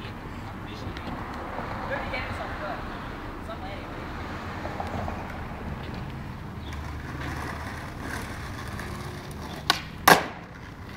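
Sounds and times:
skateboard wheels rolling on asphalt: 3.7 - 10.9
skateboard slapping pavement: 5.9 - 10.9
skateboard tail cracking: 6.7 - 10.9.

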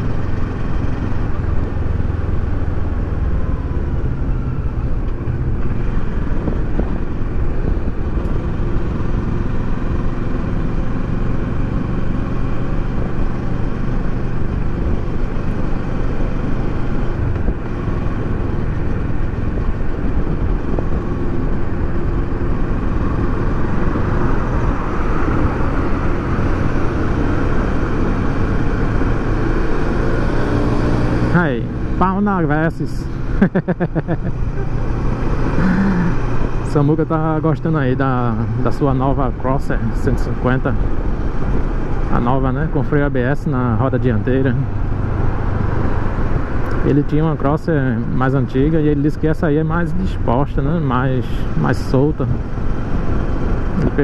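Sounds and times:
motorcycle engine running: 0.0 - 38.7
wind and road noise: 0.0 - 54.0.

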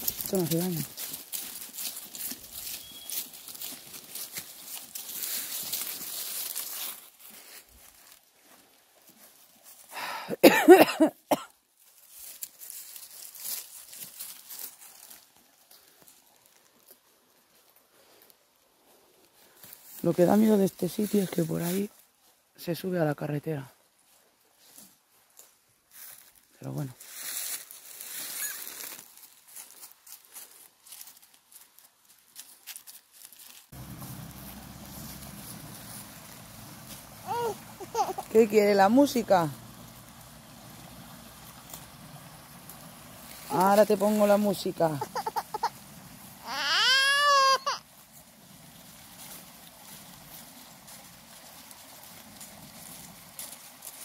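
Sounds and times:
footsteps rustling dry leaves: 0.0 - 11.0, 11.7 - 22.5, 23.9 - 54.0
goat bleating: 36.9 - 38.4, 44.9 - 47.8.

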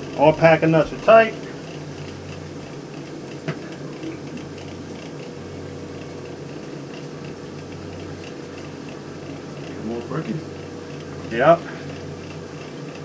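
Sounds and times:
boiler rushing: 0.0 - 13.0.

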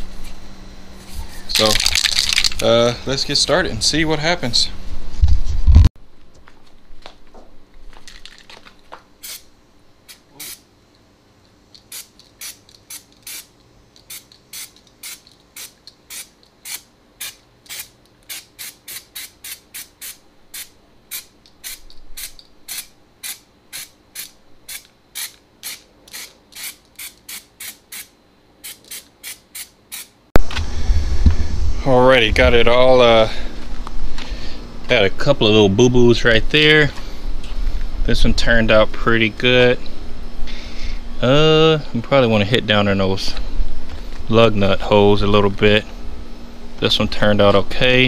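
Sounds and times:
aerosol can spraying bursts: 9.2 - 9.4, 10.1 - 10.6, 11.8 - 30.1.

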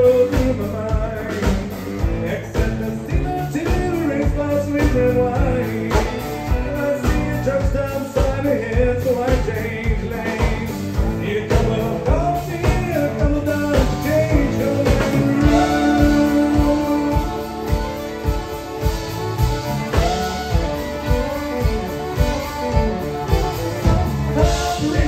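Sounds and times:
man singing: 0.0 - 19.0, 23.5 - 25.0
drum kit beat: 0.0 - 25.0
electric and acoustic guitars: 0.0 - 25.0
bowed fiddle: 13.5 - 25.0.

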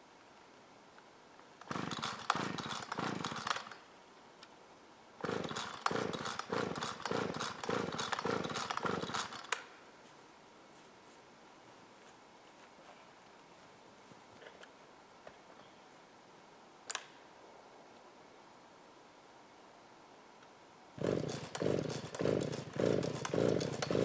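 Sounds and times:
chainsaw engine running: 1.6 - 3.8, 5.2 - 9.5, 21.0 - 24.0.

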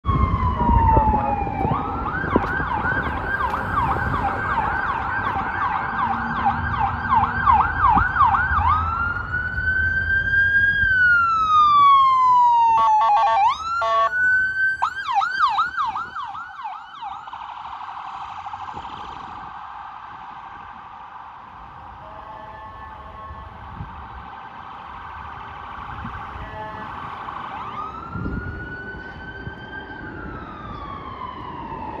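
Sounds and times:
ambulance siren yelp and wail: 0.0 - 32.0
horn honks: 22.0 - 23.6, 26.4 - 27.0.

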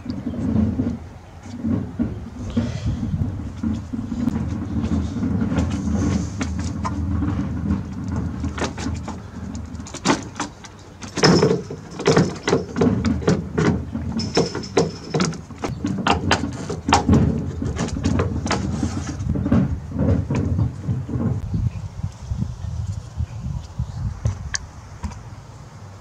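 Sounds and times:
steady low rumble: 0.0 - 10.0
plastic panel clicking and rattling: 3.2 - 21.4.

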